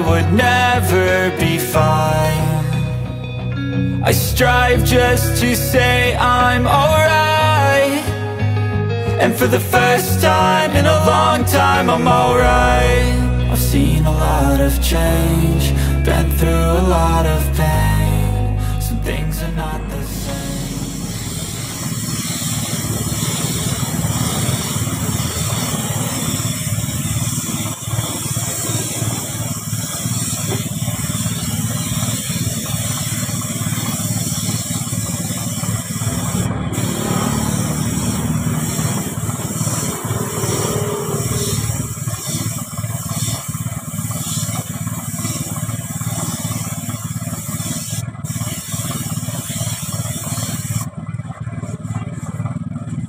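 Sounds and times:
paint spray gun hissing: 9.2s - 13.7s, 19.8s - 51.0s
low rumble: 10.4s - 23.2s, 37.5s - 42.2s.

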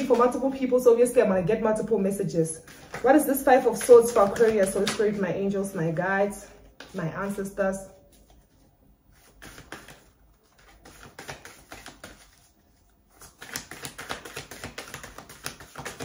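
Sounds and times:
cards being shuffled: 2.7s - 5.2s, 8.0s - 16.0s.

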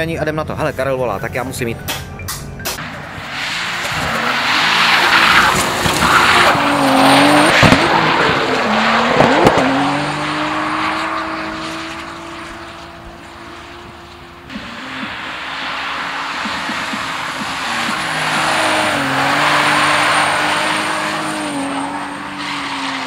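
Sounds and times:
car engine at high revs: 2.8s - 23.0s
tyres squealing: 3.6s - 11.8s.

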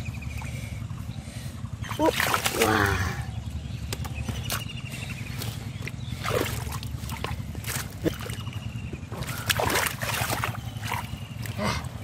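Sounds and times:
steady low rumble: 0.0s - 12.0s
hands splashing in mud and water: 1.9s - 3.0s, 5.4s - 11.7s.

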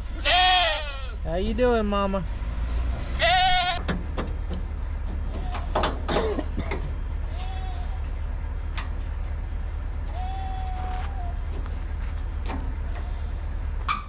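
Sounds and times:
goats bleating: 0.0s - 1.2s, 3.0s - 3.8s, 5.2s - 5.8s, 7.2s - 8.2s, 10.1s - 11.5s, 12.8s - 13.6s.

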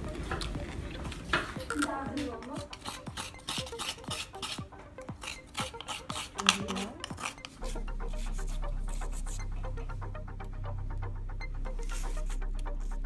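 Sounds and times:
background music: 0.0s - 13.0s
food grating strokes: 1.0s - 9.4s.

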